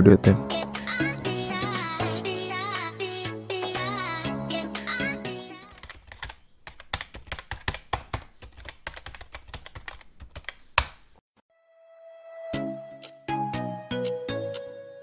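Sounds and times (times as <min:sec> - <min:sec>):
music: 0:00.0 - 0:05.7, 0:11.5 - 0:15.0.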